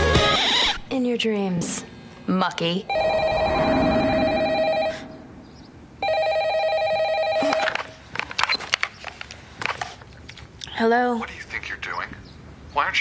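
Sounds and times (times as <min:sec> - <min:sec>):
telephone ringing: 0:02.9 - 0:05.2, 0:06.0 - 0:08.0.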